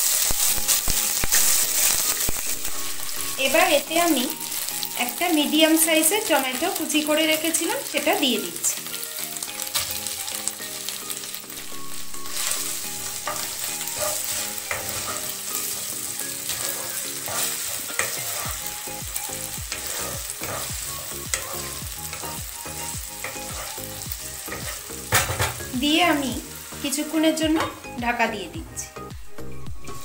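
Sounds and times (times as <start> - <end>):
tomato sizzling in hot oil: 0.0 - 30.0
wooden spatula scraping pan: 11.9 - 18.7, 19.7 - 22.4.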